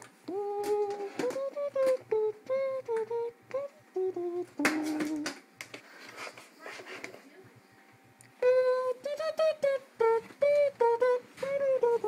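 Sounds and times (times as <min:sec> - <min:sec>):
person humming a tune: 0:00.0 - 0:05.4, 0:08.2 - 0:12.0.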